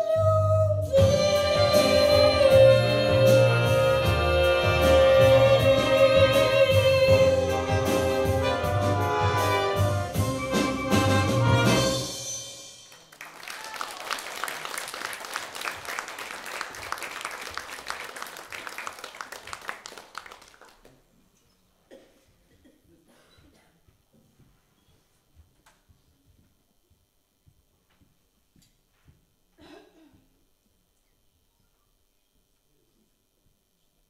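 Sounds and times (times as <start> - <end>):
woman singing: 0.0 - 7.7
orchestra playing: 1.0 - 12.9
audience applauding: 12.9 - 21.0.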